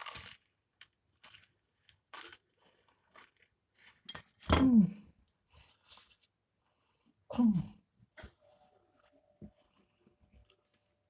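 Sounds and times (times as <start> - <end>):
pastry crunching while chewing: 0.0 - 3.5.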